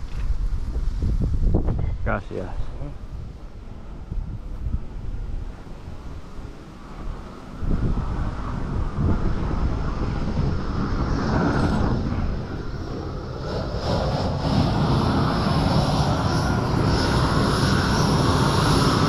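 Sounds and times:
propane torch flame rushing: 4.6 - 19.0.

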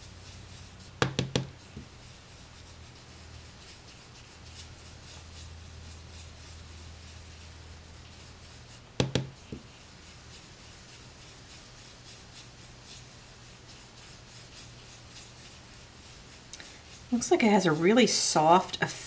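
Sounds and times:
brush bristles swishing: 0.0 - 19.0
sharp knocks: 1.0 - 1.5, 9.0 - 9.3.

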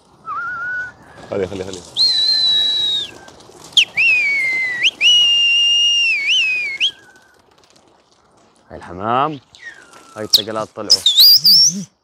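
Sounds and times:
person whistling loudly: 0.3 - 0.9, 2.0 - 3.2, 3.8 - 7.2, 9.6 - 12.0.

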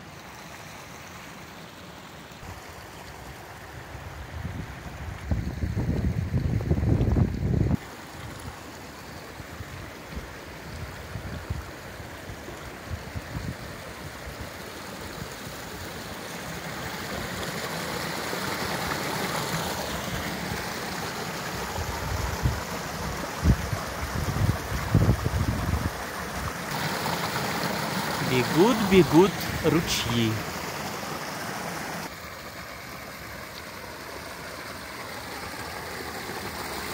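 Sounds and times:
wind buffeting microphone: 4.4 - 7.8
stream splashing over rocks: 7.0 - 36.9.

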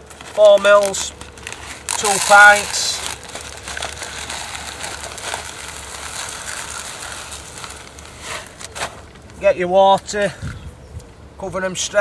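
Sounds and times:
pellets rattling into plastic tub: 0.0 - 9.4
sharp crackles: 0.0 - 9.5.

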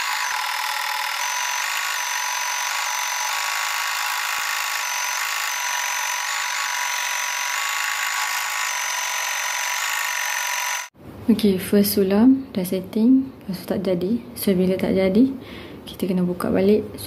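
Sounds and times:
embroidery machine whirring: 0.0 - 10.9.

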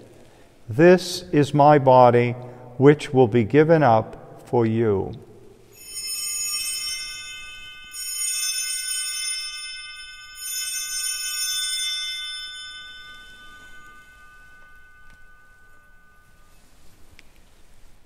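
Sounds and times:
altar bell ringing: 5.7 - 17.2.

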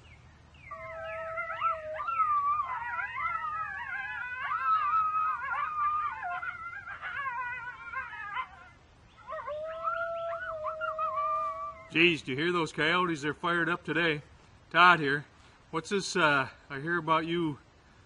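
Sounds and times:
coyotes howling and yipping: 0.7 - 12.2.

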